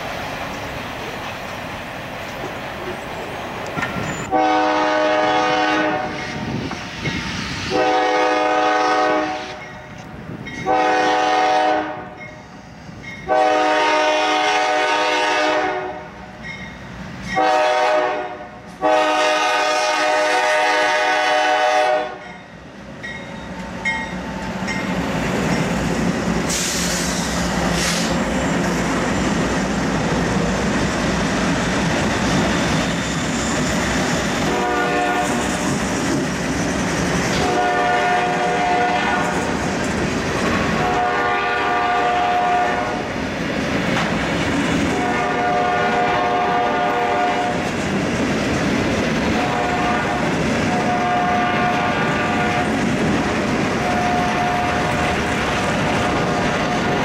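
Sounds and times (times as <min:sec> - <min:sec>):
train engine and wheel noise: 0:00.0 - 0:57.0
locomotive air horn blasts: 0:04.3 - 0:06.5, 0:07.7 - 0:09.7, 0:10.6 - 0:12.2, 0:13.3 - 0:16.1, 0:17.4 - 0:22.3, 0:34.4 - 0:35.5, 0:37.4 - 0:39.4, 0:40.8 - 0:43.0, 0:44.9 - 0:47.6, 0:49.4 - 0:52.7, 0:53.8 - 0:55.0.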